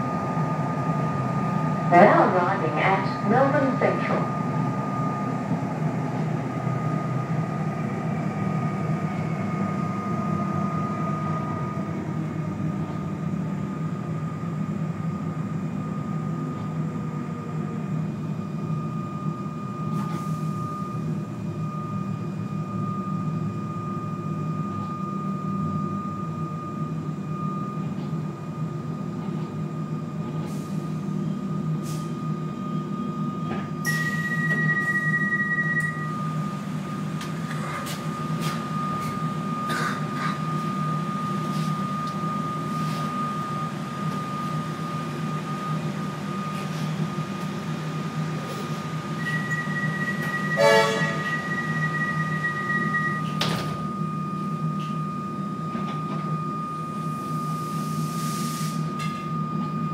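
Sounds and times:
electric train high whine: 0:00.0 - 0:59.9
train low rumble: 0:00.0 - 0:59.9.

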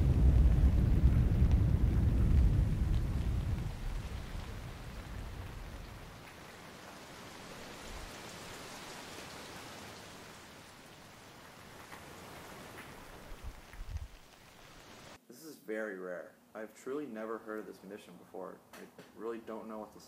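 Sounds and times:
low rumble of thunder: 0:00.0 - 0:06.7
steady rain: 0:00.0 - 0:15.2.

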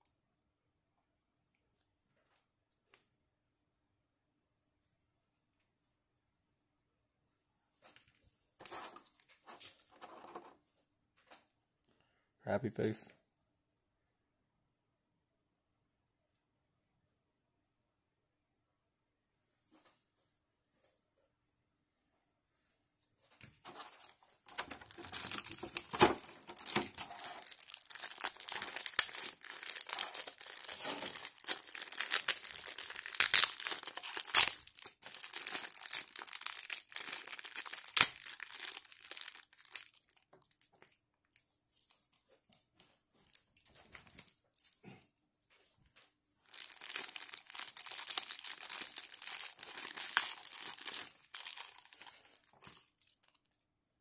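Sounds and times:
plastic packaging crinkling: 0:23.7 - 0:42.0, 0:46.5 - 0:53.5.

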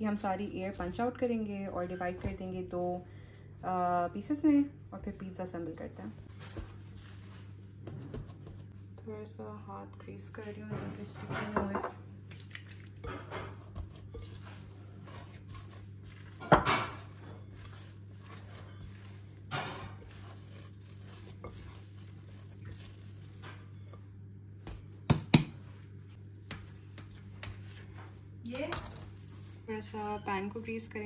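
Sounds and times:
steady low hum: 0:00.0 - 0:31.0
bowls and utensils knocking: 0:11.3 - 0:12.0.

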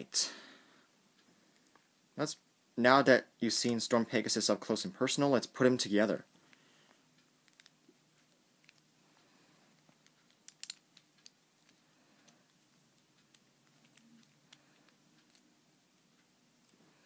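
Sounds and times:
small plastic and metal clicks: 0:07.4 - 0:07.8.

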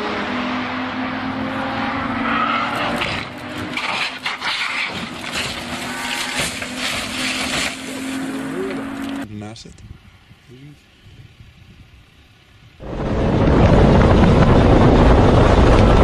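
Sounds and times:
race car engine at high revs: 0:00.0 - 0:09.3
scraping and sharp impacts: 0:02.6 - 0:09.2
car crashing and rolling over: 0:02.8 - 0:08.3.

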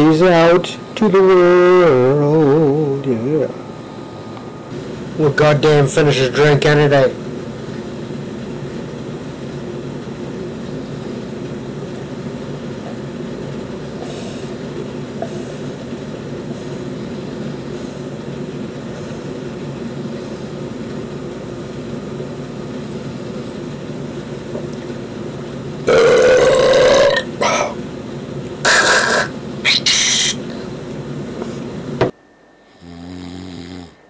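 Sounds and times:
steady mechanical hum: 0:00.0 - 0:34.0.

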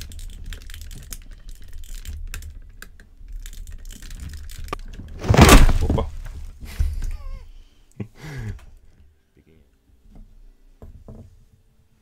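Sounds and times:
plastic clicks and scrapes: 0:00.0 - 0:05.2.

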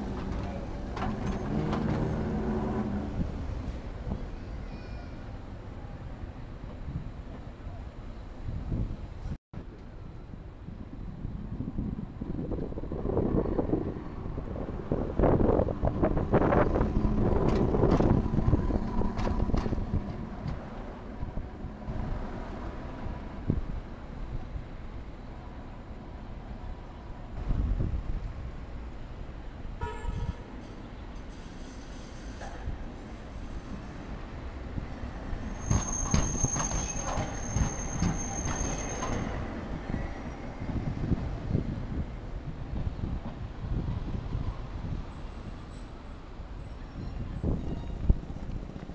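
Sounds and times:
tram wheels clattering on rails: 0:00.0 - 0:04.8, 0:15.5 - 0:23.0, 0:31.5 - 0:44.5, 0:47.4 - 0:48.9
high-pitched wheel squeal: 0:35.4 - 0:39.4, 0:45.1 - 0:48.2.

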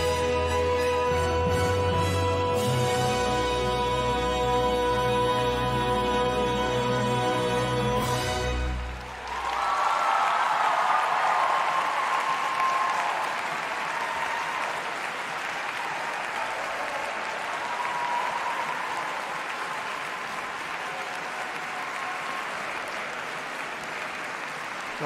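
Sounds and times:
large crowd applauding: 0:08.0 - 0:25.0.

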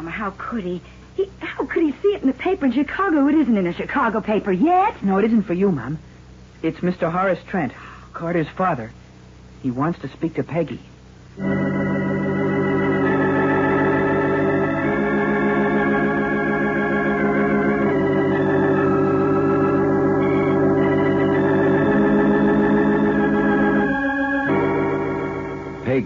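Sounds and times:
organ chords: 0:11.2 - 0:26.0.

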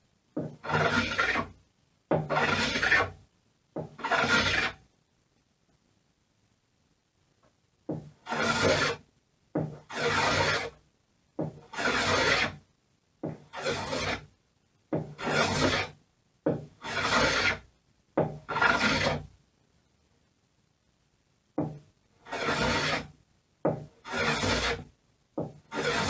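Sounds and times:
hand plane rasping on wood: 0:00.4 - 0:01.5, 0:02.2 - 0:03.2, 0:03.8 - 0:04.8, 0:08.2 - 0:09.0, 0:09.9 - 0:10.7, 0:11.6 - 0:12.6, 0:13.5 - 0:14.2, 0:15.0 - 0:15.9, 0:16.8 - 0:17.6, 0:18.5 - 0:19.2, 0:22.3 - 0:23.1, 0:24.0 - 0:24.9, 0:25.7 - 0:26.0.

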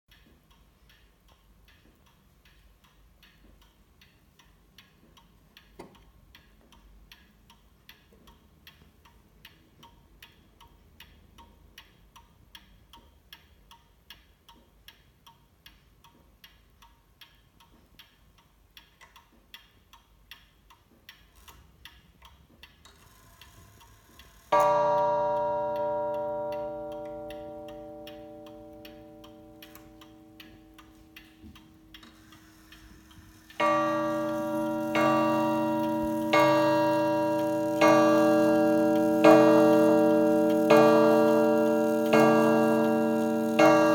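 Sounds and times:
mantel clock ticking: 0:00.1 - 0:43.9
clock striking ringing note: 0:24.5 - 0:43.9.

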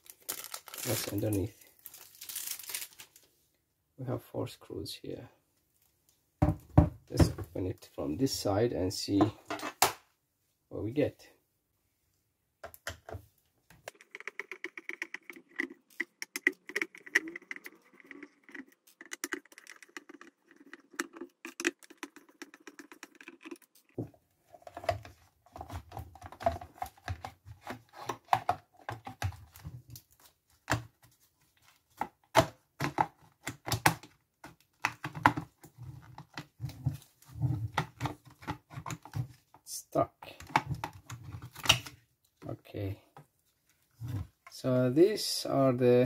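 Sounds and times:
plastic cover snapping and knocking: 0:32.0 - 0:36.6.

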